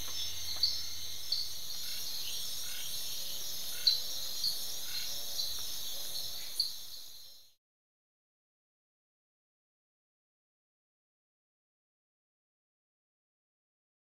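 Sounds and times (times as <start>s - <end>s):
insect chirping calls: 0.0s - 7.6s
insects droning: 0.0s - 7.6s.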